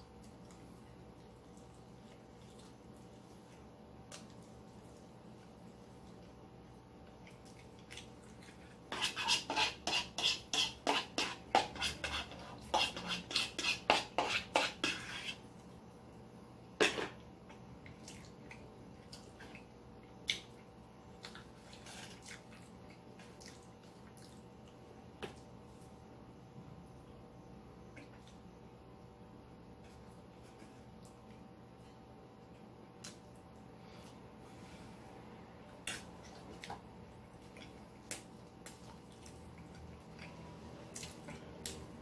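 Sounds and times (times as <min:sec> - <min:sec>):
cutlery scraping a plate: 0:08.9 - 0:15.4, 0:16.8 - 0:17.2.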